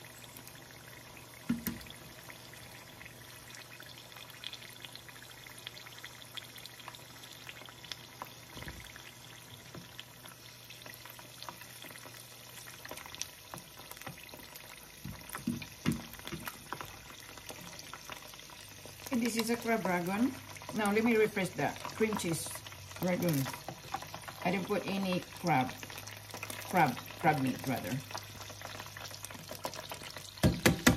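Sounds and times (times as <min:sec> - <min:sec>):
oil sizzling in a frying pan: 0:00.0 - 0:30.9
knocks: 0:30.4 - 0:30.9.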